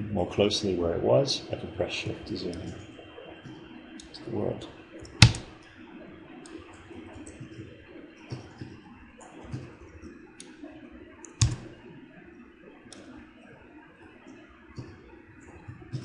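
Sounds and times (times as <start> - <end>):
low steady hum: 0.0 - 16.0
keyboard and mouse clicks: 5.0 - 5.6, 11.2 - 11.8.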